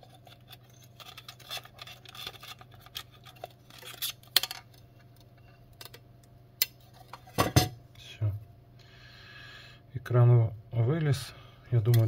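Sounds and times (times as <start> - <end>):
plastic film scraping: 0.0 - 4.3.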